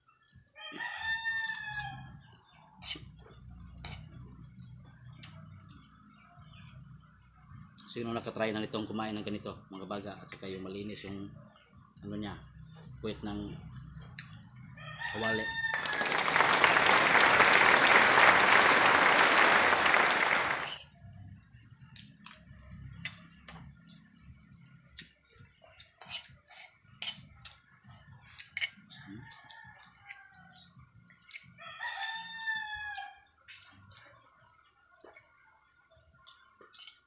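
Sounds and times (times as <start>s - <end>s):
rooster crowing: 14.8s - 20.7s, 31.6s - 33.2s
metal spoon scraping a wok: 26.0s - 27.3s.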